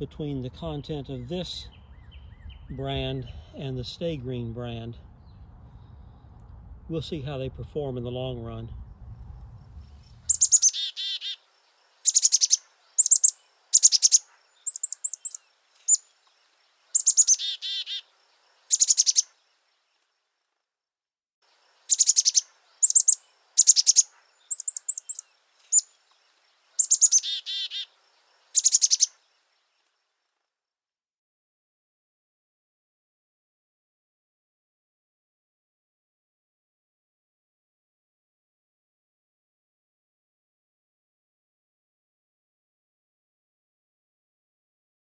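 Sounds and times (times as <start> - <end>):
bird chirps and whistles: 10.3 - 11.4, 12.1 - 16.0, 17.0 - 18.0, 18.7 - 19.3, 21.9 - 25.9, 26.8 - 27.9, 28.6 - 29.2
bird trills: 10.3 - 19.4, 21.5 - 29.2.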